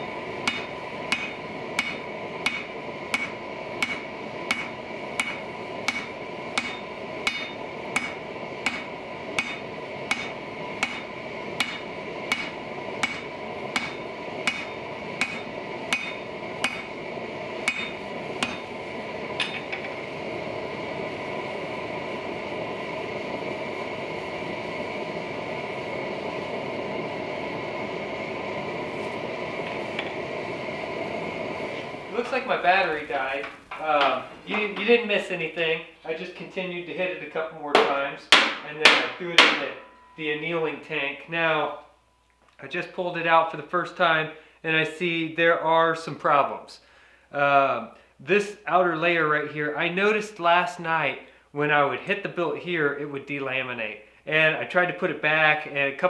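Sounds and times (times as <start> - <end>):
hammer blows on hot steel: 0.0 - 35.3, 37.7 - 40.7
gas forge hissing: 0.0 - 56.0.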